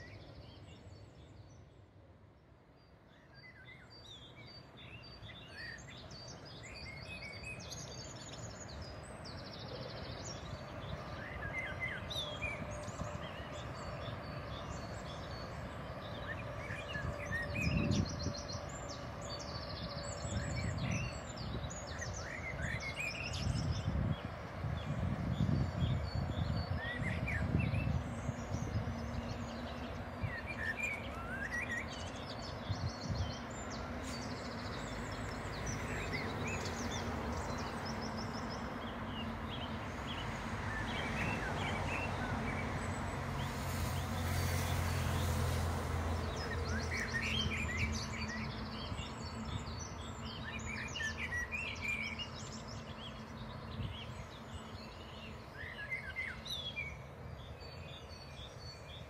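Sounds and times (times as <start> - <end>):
distant freight train rumble: 4.5 - 51.2.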